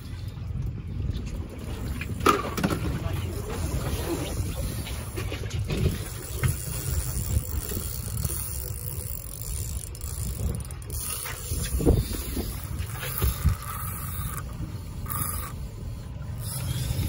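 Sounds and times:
wind rumble on microphone: 0.0 - 17.0
fishing reel gears whirring: 3.7 - 17.0.

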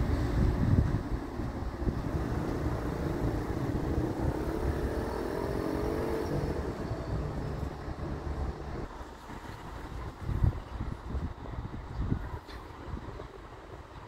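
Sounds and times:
diesel train engines accelerating: 0.0 - 10.4.

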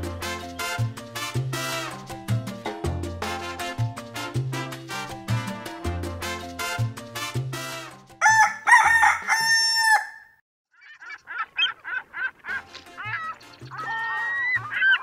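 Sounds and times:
rooster crowing: 8.2 - 10.4.

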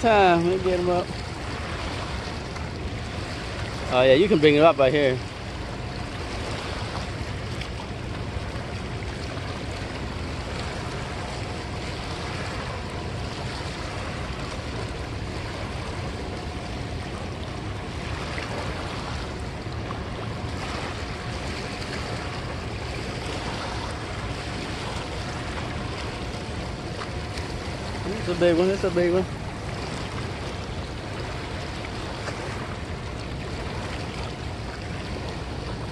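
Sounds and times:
river water rushing: 0.0 - 35.9.

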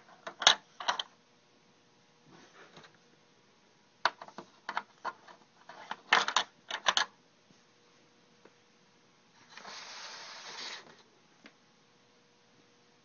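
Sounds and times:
soft steady hiss: 0.0 - 13.0
plastic toy parts clicking and rattling: 0.2 - 1.1, 4.1 - 7.1.

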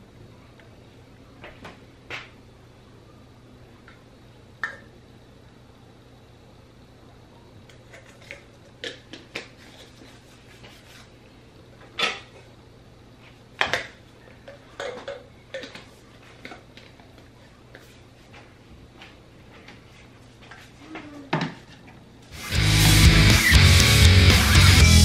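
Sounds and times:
plastic cups clacking together: 13.6 - 16.9.

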